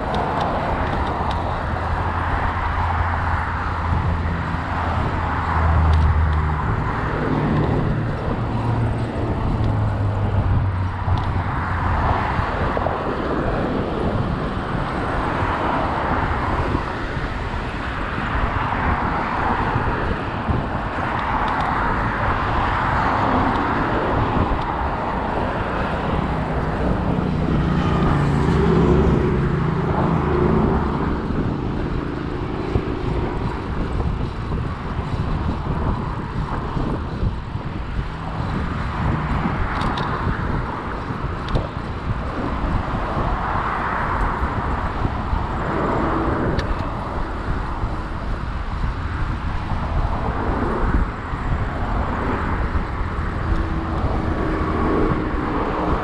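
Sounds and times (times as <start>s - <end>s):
road traffic passing: 0.0s - 56.0s
wind rumble on microphone: 0.0s - 56.0s
loud engine drone: 23.1s - 40.9s, 51.8s - 56.0s.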